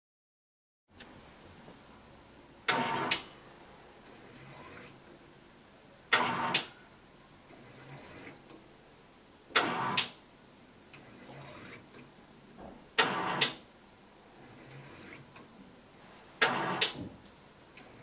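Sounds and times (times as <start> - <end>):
faint machine sounds: 1.9 - 18.0.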